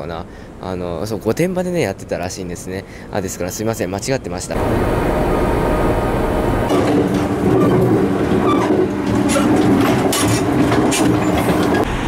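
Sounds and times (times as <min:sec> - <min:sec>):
train interior low hum: 0:04.3 - 0:12.0
train wheels clicking over rails: 0:06.6 - 0:11.9.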